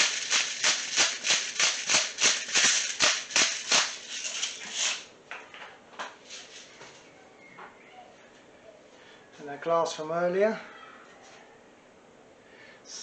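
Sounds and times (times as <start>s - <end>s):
salt mill grinding: 0.0s - 5.1s.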